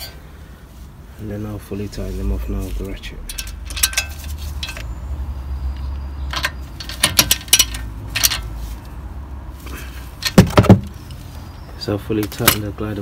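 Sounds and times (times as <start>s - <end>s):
wrench clinking on metal: 3.2s - 4.8s, 6.3s - 8.5s.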